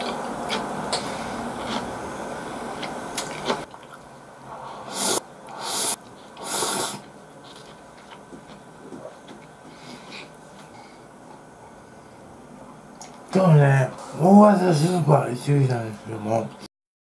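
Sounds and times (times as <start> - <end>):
soft chewing: 0.0 - 1.9, 7.0 - 10.9
noodles slurped: 4.8 - 8.2.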